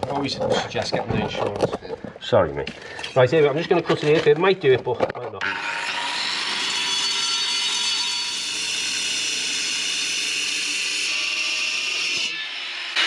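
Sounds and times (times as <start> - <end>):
angle grinder cutting clay pipe: 5.4 - 13.0.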